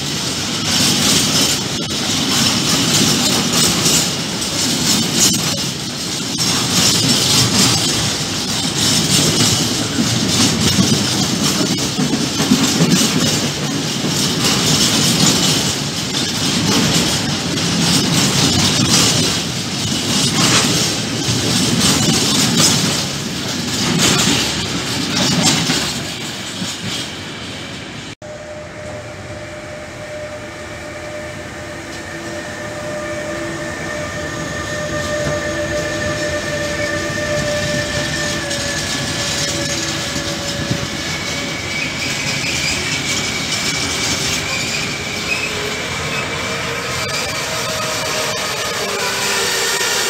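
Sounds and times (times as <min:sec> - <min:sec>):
empty freight wagons rattling: 0:00.0 - 0:27.1
electric locomotive whining: 0:00.0 - 0:50.0
train wheels rumbling: 0:00.0 - 0:50.0.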